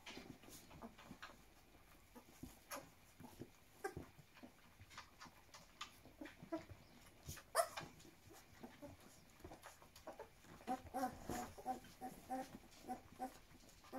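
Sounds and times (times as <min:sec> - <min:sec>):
puppies squeaking and whimpering: 0:06.1 - 0:13.9
puppy squealing: 0:07.5 - 0:07.9.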